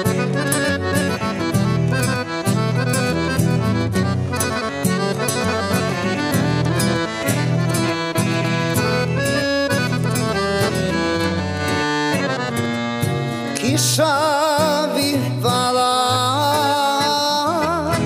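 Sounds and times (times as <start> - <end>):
accordion melody: 0.0 - 18.0
acoustic guitar strumming: 0.0 - 18.0.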